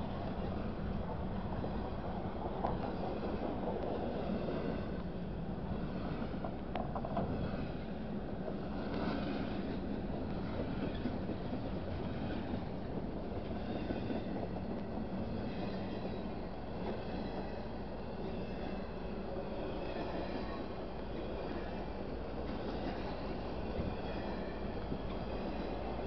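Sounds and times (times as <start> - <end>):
freight train wheels rumbling: 0.0 - 26.0.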